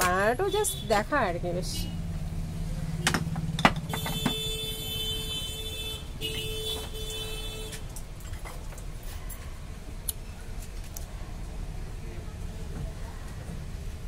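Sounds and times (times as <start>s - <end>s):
low steady rumble: 0.1s - 6.3s.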